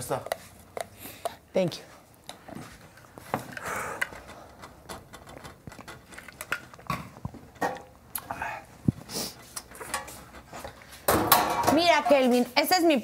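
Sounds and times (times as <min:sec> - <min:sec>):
utensils and dishes clattering: 0:09.3 - 0:12.3.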